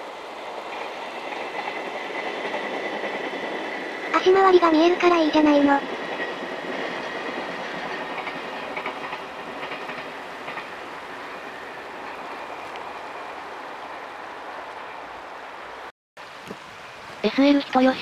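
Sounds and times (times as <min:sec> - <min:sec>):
train wheels clacking over rail joints: 0:00.6 - 0:13.1.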